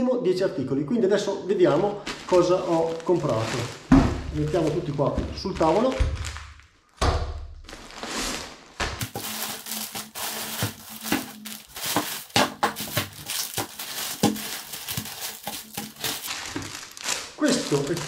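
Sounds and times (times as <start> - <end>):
plastic packaging crinkling: 1.7 - 7.0, 7.6 - 18.0
items knocking when set down: 9.0 - 16.7.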